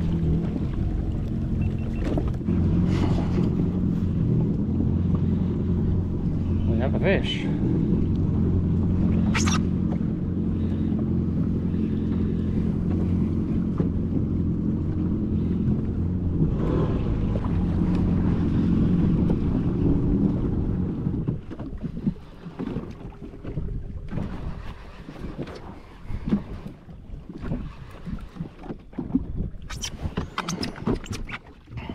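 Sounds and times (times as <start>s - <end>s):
jet ski engine idling: 0.0s - 21.5s
water slapping: 0.0s - 31.9s
wind: 0.0s - 31.9s.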